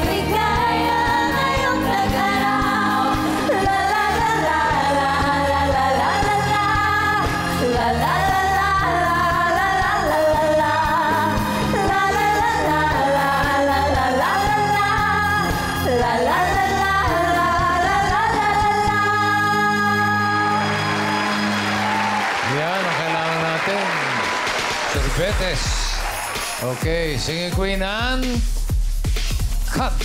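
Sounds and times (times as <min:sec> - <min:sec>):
women singing a pop song: 0:00.0 - 0:21.1
backing track with bass line: 0:25.0 - 0:30.0.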